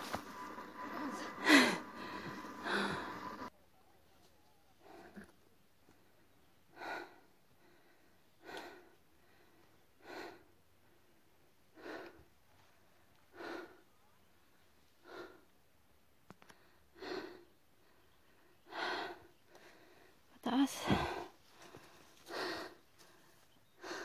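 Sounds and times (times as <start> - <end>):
person breathing hard: 0.0 - 3.5, 6.7 - 12.3, 13.3 - 13.8, 15.0 - 15.5, 16.4 - 24.0.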